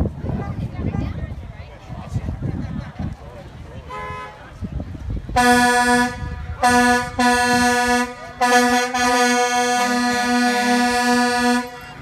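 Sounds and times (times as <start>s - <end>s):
truck air horn blasts: 3.9s - 4.4s, 5.4s - 12.0s
lower horn pulses: 5.4s - 12.0s.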